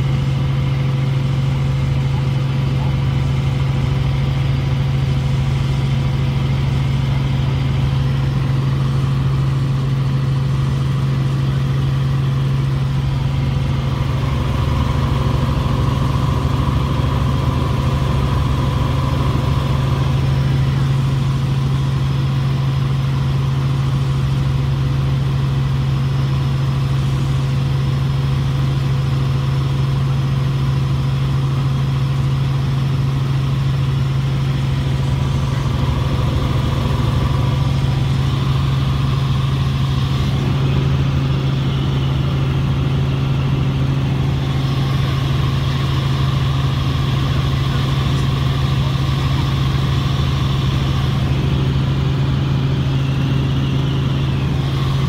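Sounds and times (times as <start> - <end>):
helicopter cabin hum: 0.0 - 55.0.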